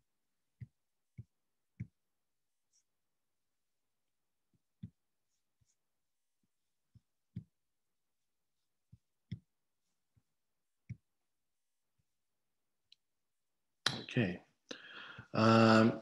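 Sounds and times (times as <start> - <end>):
computer clicks and soft thumps: 0.6 - 2.0, 4.5 - 5.0, 6.9 - 7.6, 8.8 - 11.1.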